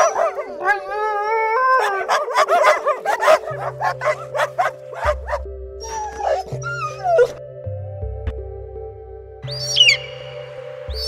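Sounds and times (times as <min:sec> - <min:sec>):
puppies yipping and barking: 0:00.0 - 0:07.4
puppy howl: 0:00.0 - 0:07.4
background music: 0:00.0 - 0:11.0.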